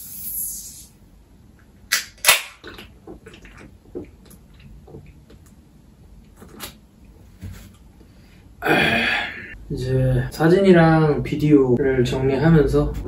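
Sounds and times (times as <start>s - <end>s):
swallowing: 2.6s - 5.6s.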